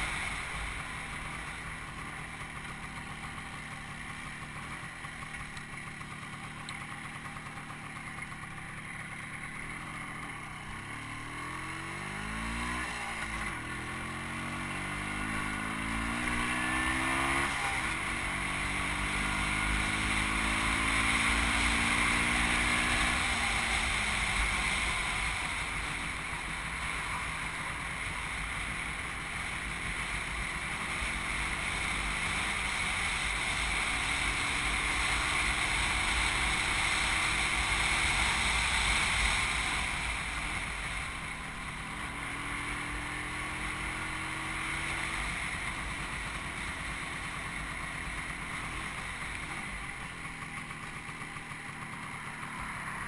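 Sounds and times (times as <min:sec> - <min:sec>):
car engine running: 0:00.0 - 0:53.0
wind and road noise: 0:00.0 - 0:53.0.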